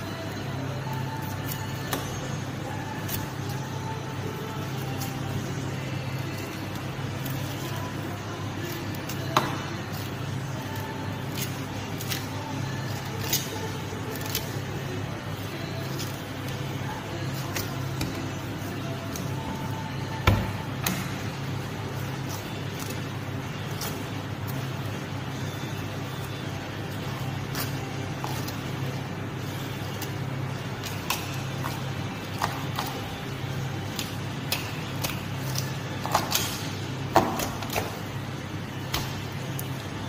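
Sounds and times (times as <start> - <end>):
low machine hum: 0.0 - 40.0.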